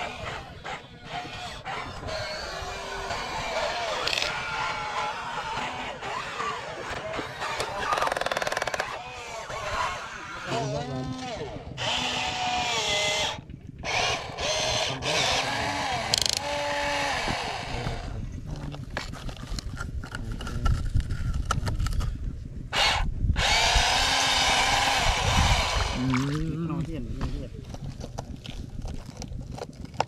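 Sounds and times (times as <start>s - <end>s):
small electric motors whining: 0.0s - 19.8s, 22.7s - 26.8s.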